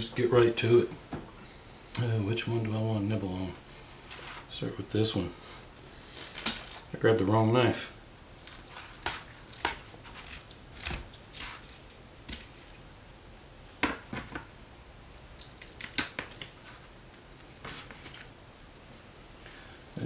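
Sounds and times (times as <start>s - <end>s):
knife crunching through skin: 8.4s - 12.6s.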